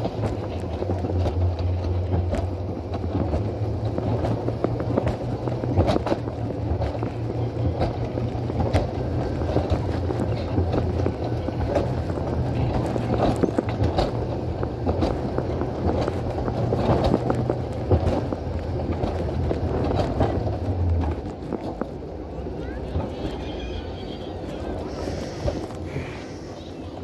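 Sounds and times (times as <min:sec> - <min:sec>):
rattles and clicks: 0:00.0 - 0:23.6
sled wheels rumbling on rails: 0:00.0 - 0:27.0.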